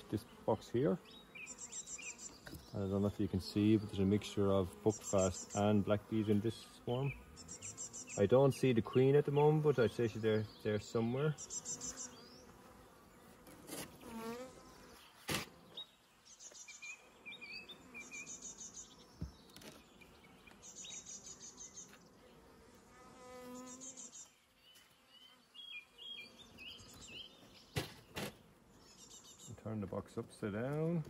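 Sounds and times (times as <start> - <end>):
bee flying past: 0.0 - 29.1
bees buzzing: 0.0 - 29.4.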